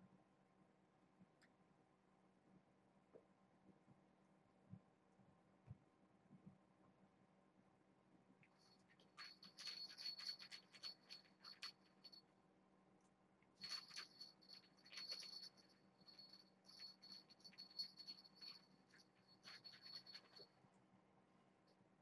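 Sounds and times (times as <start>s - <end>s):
fabric toy rustling and scratching: 8.6s - 12.2s, 13.6s - 20.5s.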